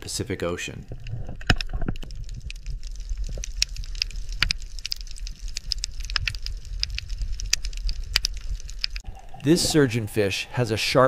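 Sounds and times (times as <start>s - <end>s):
underwater clicks and pops: 0.9s - 9.8s.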